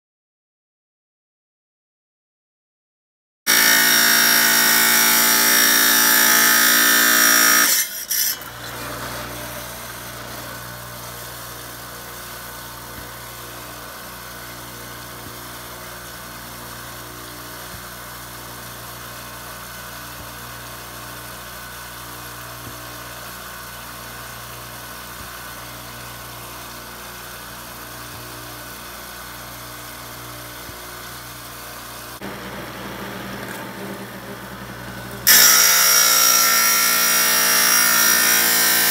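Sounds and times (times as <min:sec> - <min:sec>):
tile saw grinding stone: 0:03.5 - 0:11.2, 0:32.0 - 0:38.9
saw motor hum: 0:03.5 - 0:20.7, 0:21.7 - 0:38.9.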